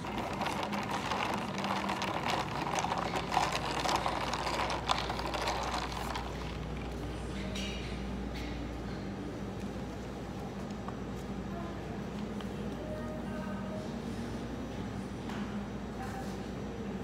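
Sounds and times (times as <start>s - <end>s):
straw rattling in plastic cup: 0.0s - 7.0s.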